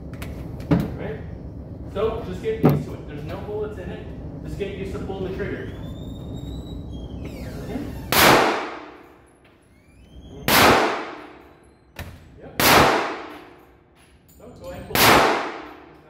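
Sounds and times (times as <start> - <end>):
gunshots echoing: 8.1 - 9.0, 10.5 - 11.5, 12.6 - 13.6, 14.9 - 16.0.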